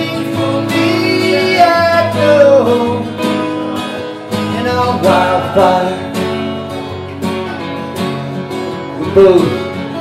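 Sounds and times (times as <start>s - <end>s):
man singing: 0.0s - 6.6s
acoustic guitars strumming: 0.0s - 10.0s.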